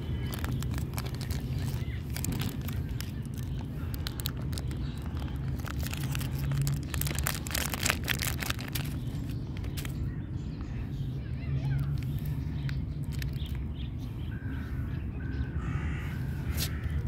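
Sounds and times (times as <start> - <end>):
plastic wrapper crinkling: 0.0 - 10.0, 13.0 - 13.6.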